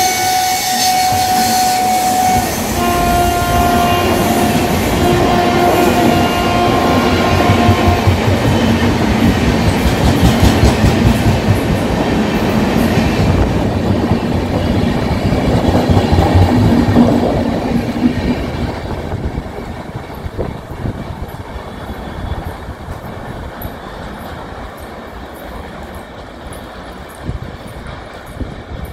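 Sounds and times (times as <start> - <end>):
train horn: 0.0 - 8.7
train wheels clattering over rail joints: 4.4 - 28.9.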